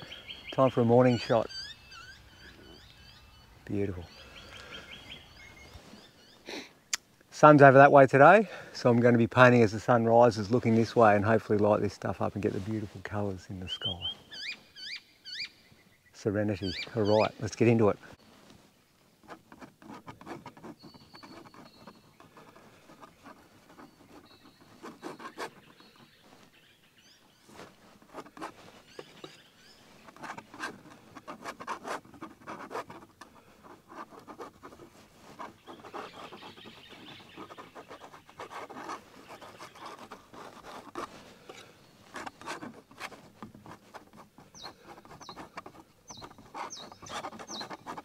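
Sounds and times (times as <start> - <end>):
palette knife scraping canvas: 19.2 - 26.6, 27.5 - 48.0.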